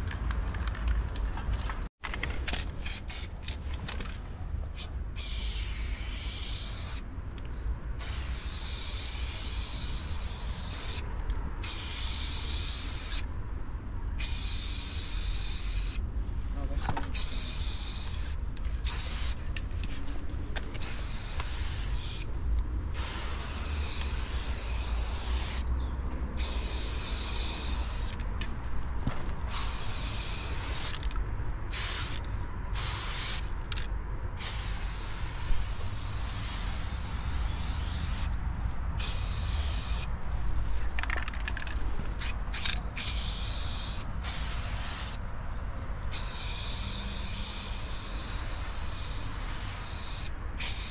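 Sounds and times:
spray paint can hissing: 2.8 - 3.3, 4.7 - 7.0, 8.0 - 11.0, 11.6 - 13.3, 14.2 - 16.0, 17.1 - 19.4, 20.8 - 22.3, 22.9 - 25.7, 26.4 - 28.2, 29.5 - 31.1, 31.7 - 38.4, 39.0 - 40.2, 40.8 - 50.9.

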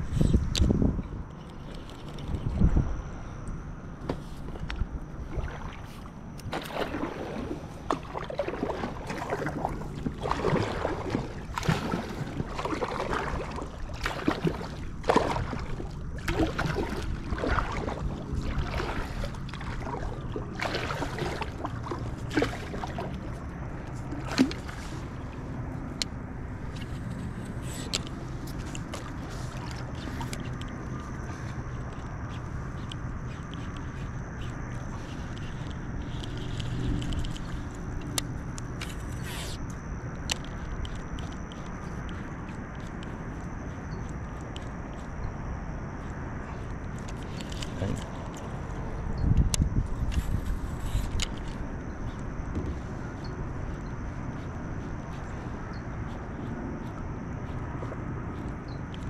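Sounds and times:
low steady rumble: 0.0 - 59.0
paddle splashing in water: 5.2 - 25.5, 27.6 - 31.9.

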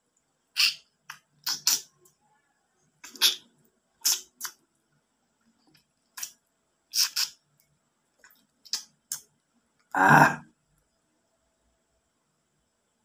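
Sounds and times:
wet slurping and lip-smacking: 0.6 - 1.9, 3.0 - 3.4, 4.0 - 4.6, 7.0 - 7.4, 8.2 - 9.2.

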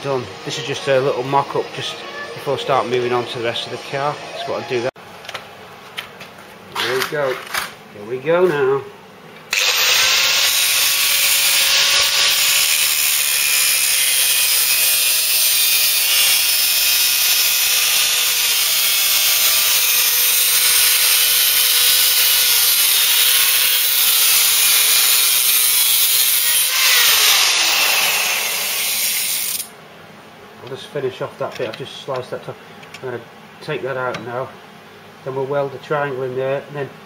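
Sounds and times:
angle grinder cutting steel: 9.5 - 29.7.

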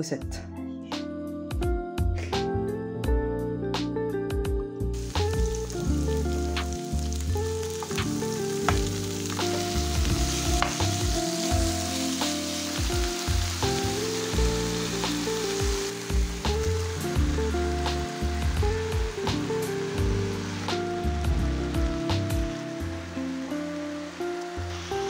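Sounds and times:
food sizzling in oil: 5.0 - 25.0
wooden spoon knocking pan: 7.8 - 11.0.

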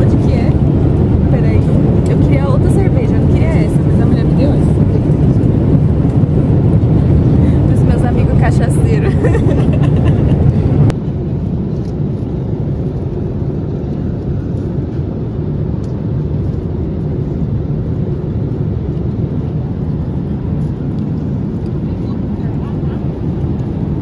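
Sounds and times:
vehicle rumbling in motion: 0.0 - 24.0.

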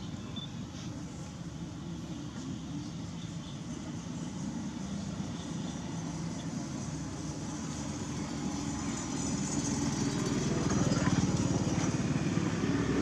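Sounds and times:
small engine running: 4.0 - 13.0.

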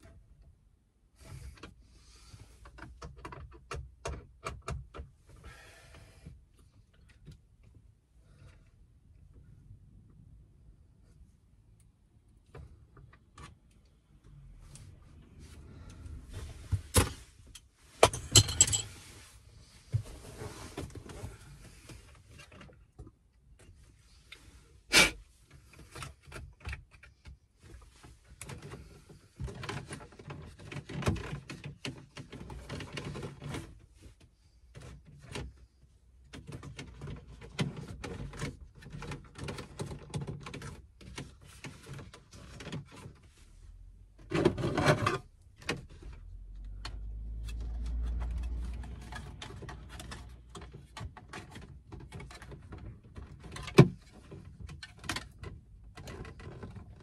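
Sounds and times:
clicks and knocks of plastic parts: 2.6 - 5.4, 25.5 - 35.6, 36.2 - 43.3, 44.1 - 57.0
parts clattering: 17.9 - 19.2.

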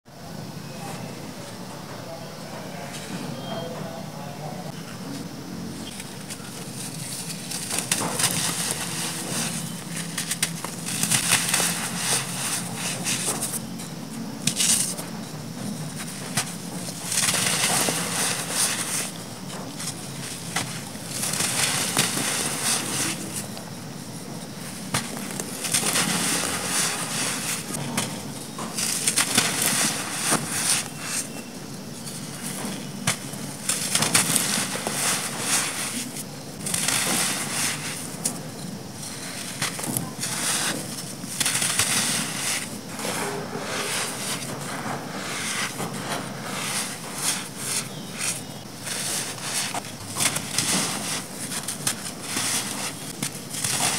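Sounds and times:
sand crunching between hands: 6.2 - 15.1, 15.9 - 28.0, 28.7 - 53.9
sand grains spilling hiss: 6.4 - 13.6, 16.0 - 23.5, 24.6 - 27.8, 28.7 - 31.4, 33.2 - 38.2, 39.0 - 53.9.

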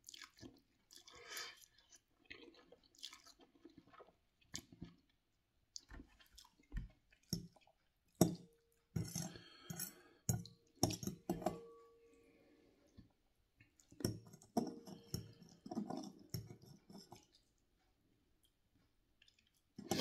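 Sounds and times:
person slurping and chewing noodles: 0.0 - 5.2, 19.2 - 20.0.

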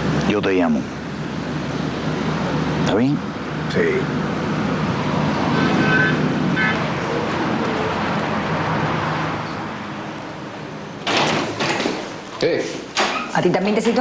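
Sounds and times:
street traffic rumble: 0.0 - 14.0
door opening clatter: 11.0 - 12.2, 12.9 - 14.0.

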